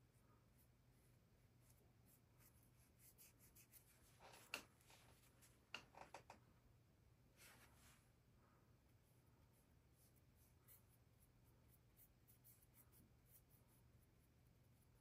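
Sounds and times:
low room hum: 0:00.0 - 0:15.0
paintbrush scratching on panel: 0:01.6 - 0:04.6.

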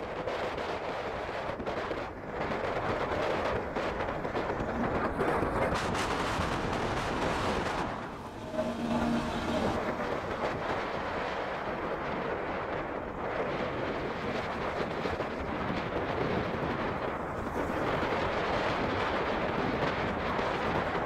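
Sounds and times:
wind rushing over microphone: 0:00.0 - 0:21.0
road noise: 0:03.0 - 0:11.6
steady tone: 0:07.5 - 0:11.0.

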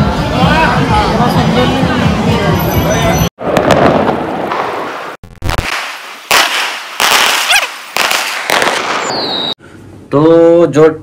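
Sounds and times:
firework bangs with hiss: 0:03.4 - 0:09.5
firework rising whistle: 0:08.5 - 0:09.6.

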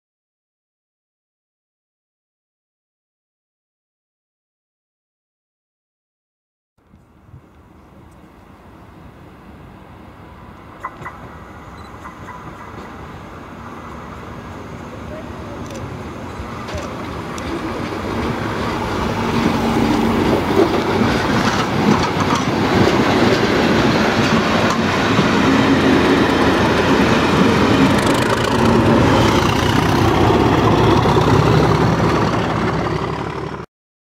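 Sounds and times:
diesel locomotive engine: 0:06.8 - 0:33.7
train wheels running over rails: 0:10.5 - 0:33.7.

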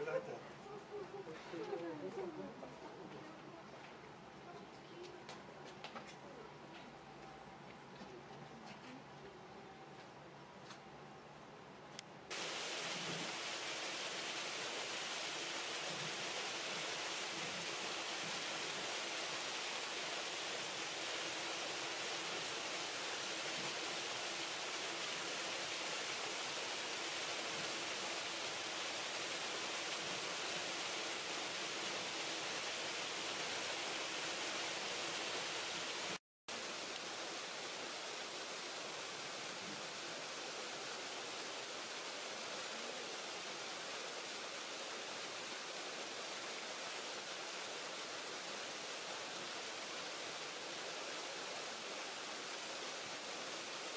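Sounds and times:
rushing water: 0:00.0 - 0:03.1, 0:12.3 - 0:53.9.

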